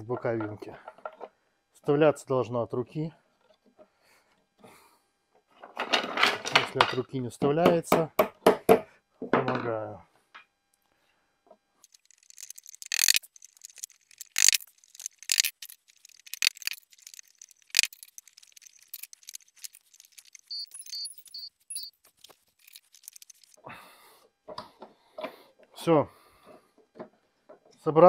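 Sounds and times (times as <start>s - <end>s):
short high beeps: 20.4s - 22.0s.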